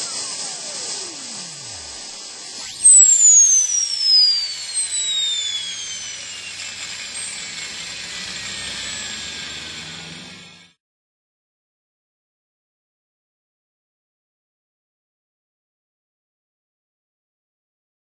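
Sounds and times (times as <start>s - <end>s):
faint falling tone: 0.0s - 10.7s
turbine engine whine winding down: 0.0s - 10.8s.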